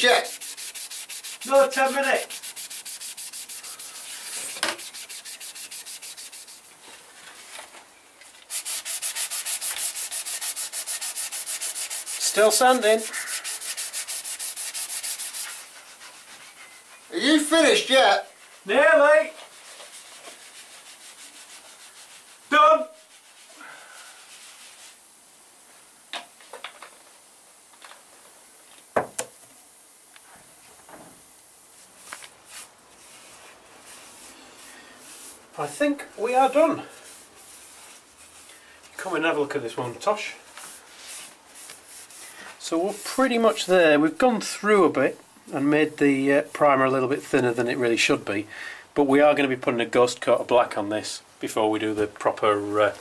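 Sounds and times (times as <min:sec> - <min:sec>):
sandpaper sanding plastic: 0:00.0 - 0:06.7, 0:08.5 - 0:23.5, 0:40.5 - 0:43.7.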